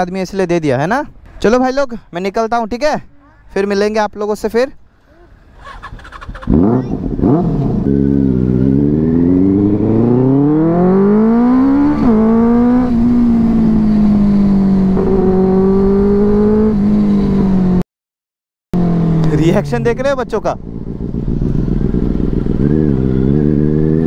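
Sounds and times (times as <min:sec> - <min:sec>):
motorcycle engine accelerating: 0:05.5 - 0:17.8, 0:18.8 - 0:24.0.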